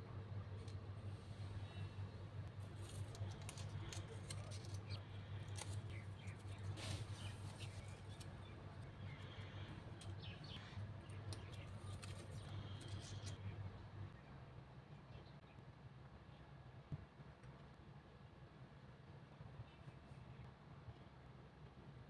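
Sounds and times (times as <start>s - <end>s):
steady low hum: 0.0s - 22.0s
paper rustling and clicks: 2.7s - 8.4s, 11.1s - 13.4s.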